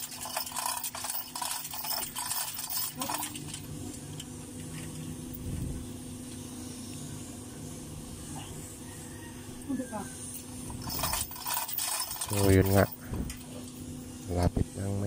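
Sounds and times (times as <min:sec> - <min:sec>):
chain links rattling and clinking: 0:00.0 - 0:03.8, 0:10.3 - 0:14.0
low steady hum: 0:00.0 - 0:15.0.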